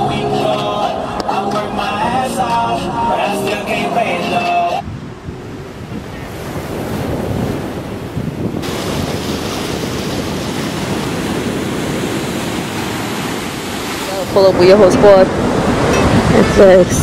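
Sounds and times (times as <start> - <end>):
ocean surf breaking: 0.0 - 17.0
wind on microphone: 4.6 - 17.0.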